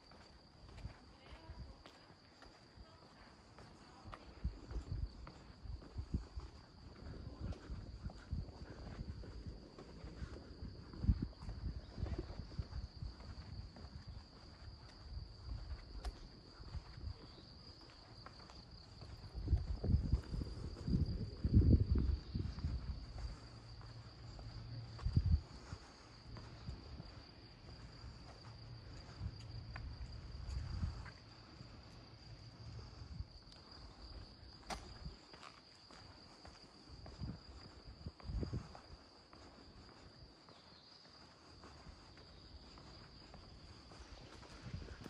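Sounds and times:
insects chirring: 0.0s - 45.0s.

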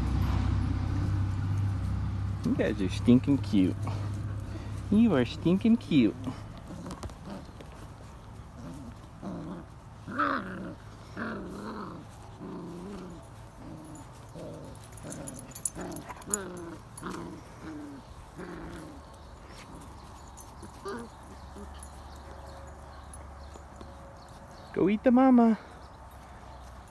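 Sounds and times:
puppies growling: 0.0s - 24.7s.

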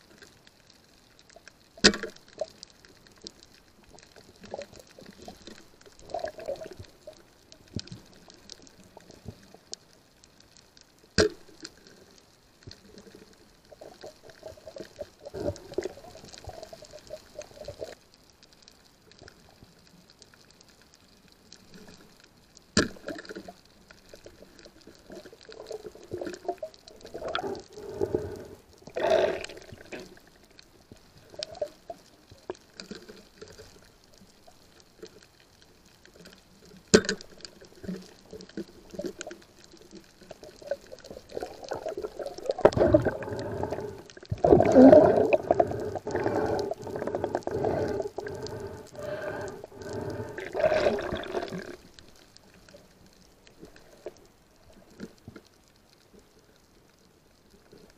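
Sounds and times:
underwater swishing and bubbling: 0.0s - 57.9s.

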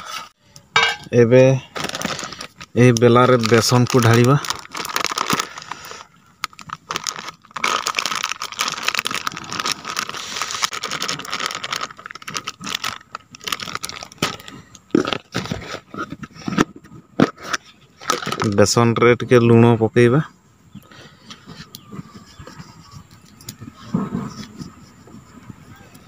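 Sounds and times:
plastic packet crinkling: 1.5s - 15.8s, 18.0s - 18.8s.

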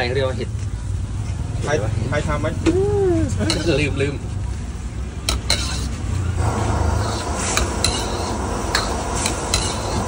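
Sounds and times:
steady rushing noise: 0.9s - 10.0s
metal ladle scraping a wok: 3.4s - 3.9s, 5.2s - 10.0s.

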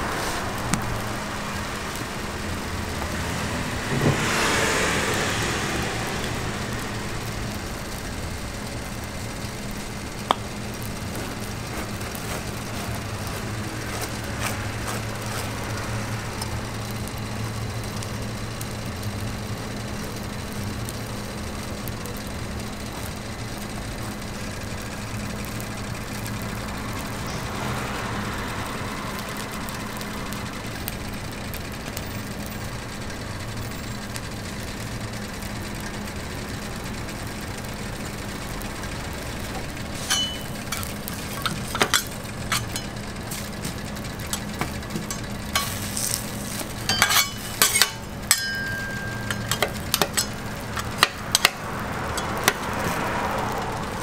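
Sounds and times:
steady low hum: 0.0s - 27.3s, 32.8s - 54.0s
frying sizzle on griddle: 0.0s - 54.0s
metal spatula clinking and scraping: 40.0s - 43.0s, 44.3s - 51.6s.

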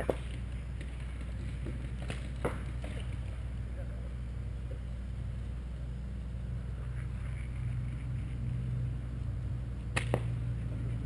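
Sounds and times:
steady low rumble: 0.0s - 11.0s
sharp paintball marker shots: 9.9s - 10.3s.

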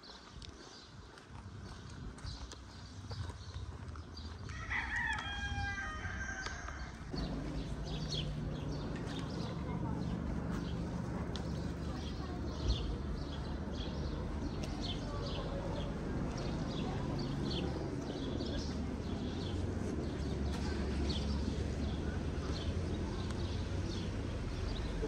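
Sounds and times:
small birds chirping: 6.7s - 25.0s
steady low rumble: 7.1s - 25.0s.

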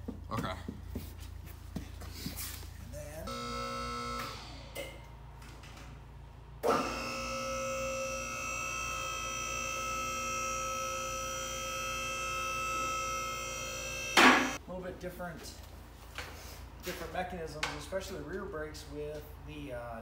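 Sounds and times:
hydraulic car lift whining: 3.3s - 5.2s, 6.6s - 14.6s.

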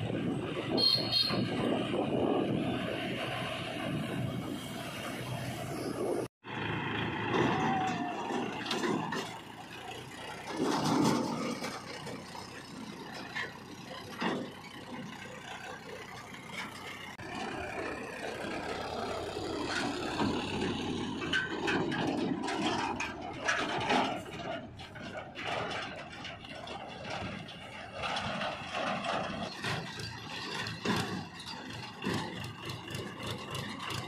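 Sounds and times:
tractor diesel engine under load: 0.0s - 34.0s
trailer knocks and rattles: 0.0s - 34.0s.

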